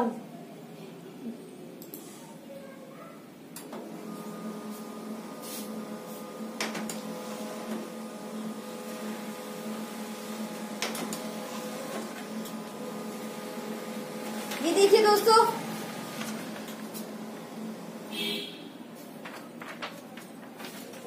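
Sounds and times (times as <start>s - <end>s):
printer motor hum: 3.6s - 21.0s
printer paper feed clicks: 5.6s - 8.0s, 8.8s - 17.5s, 19.2s - 21.0s.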